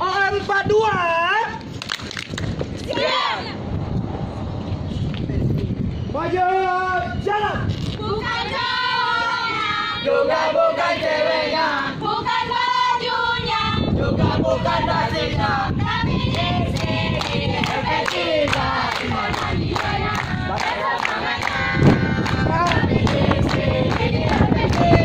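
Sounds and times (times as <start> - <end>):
group singing in unison: 8.0 - 25.0
rhythmic hand claps: 16.2 - 25.0.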